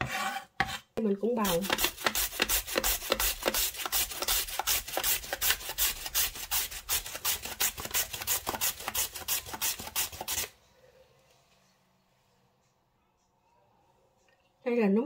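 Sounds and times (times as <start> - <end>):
carrot rasping on grater: 1.4 - 10.5.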